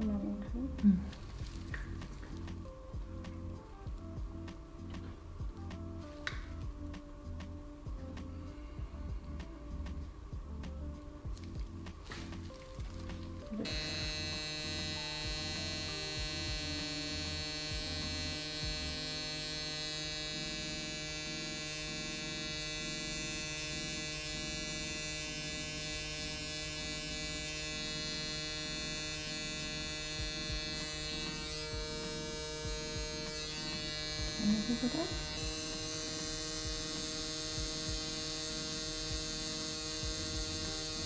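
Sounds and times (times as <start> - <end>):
tattoo machine pen buzzing: 11.3 - 41.0.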